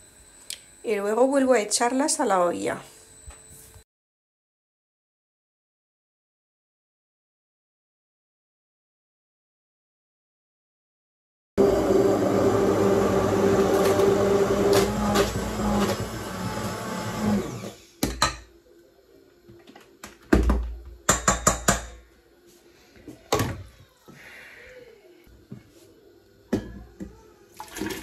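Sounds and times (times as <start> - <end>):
immersion blender motor hum: 11.6 - 18.0.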